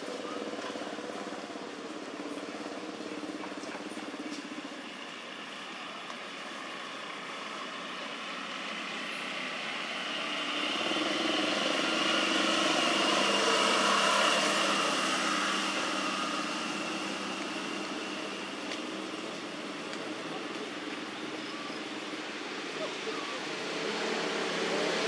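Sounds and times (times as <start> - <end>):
motor vehicle passing: 6.8 - 25.0.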